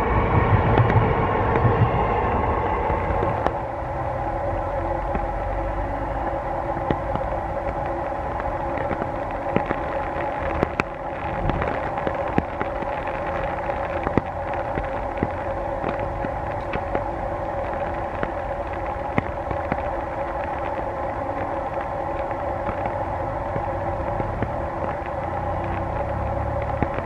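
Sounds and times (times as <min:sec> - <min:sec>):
rain falling: 0:00.0 - 0:27.0
two-tone drone: 0:00.0 - 0:27.0
drops ticking on hard surface: 0:06.8 - 0:27.0.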